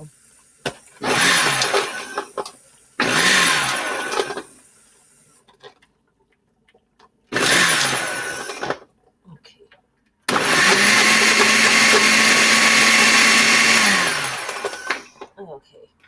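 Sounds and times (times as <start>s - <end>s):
blender pulsing: 0.8s - 4.9s, 7.3s - 8.8s, 10.3s - 15.3s.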